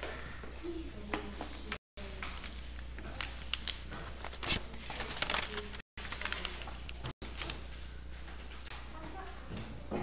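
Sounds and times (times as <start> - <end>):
paper rustling: 2.1 - 8.7.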